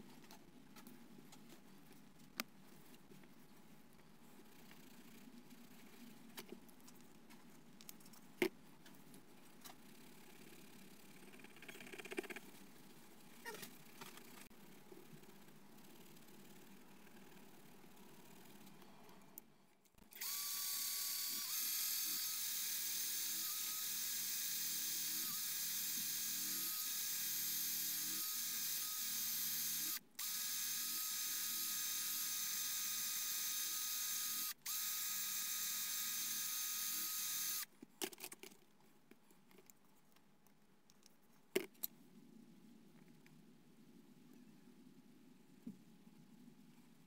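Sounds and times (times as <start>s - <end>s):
rotary tool high whine: 20.2s - 37.7s.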